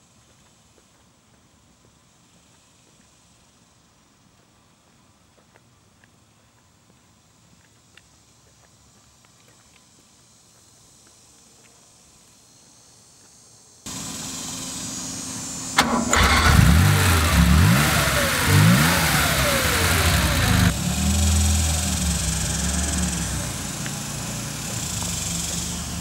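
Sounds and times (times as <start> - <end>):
car engine revving and idling: 15.7 - 26.0
car starter cranking: 15.8 - 20.8.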